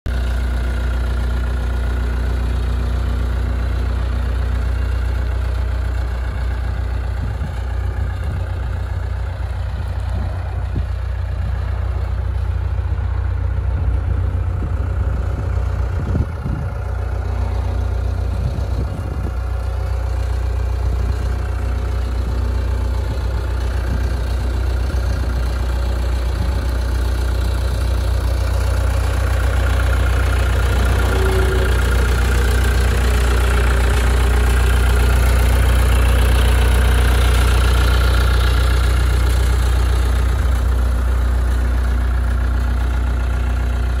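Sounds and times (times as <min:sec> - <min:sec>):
diesel engine idling: 0:00.1 - 0:44.0.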